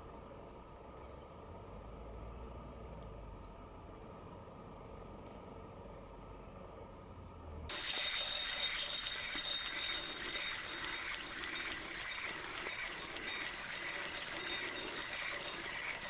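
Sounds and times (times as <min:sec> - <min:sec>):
fishing reel clicking: 0:07.7 - 0:16.0.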